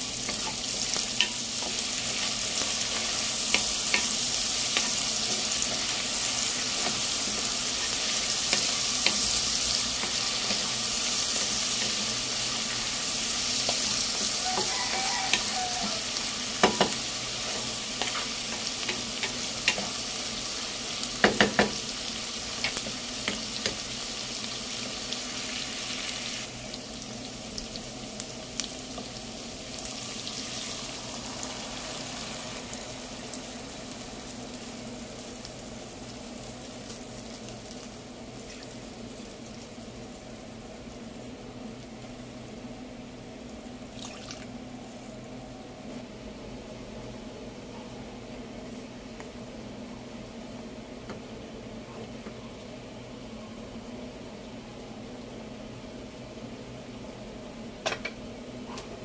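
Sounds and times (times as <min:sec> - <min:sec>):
food sizzling in hot oil: 0:00.0 - 0:44.6.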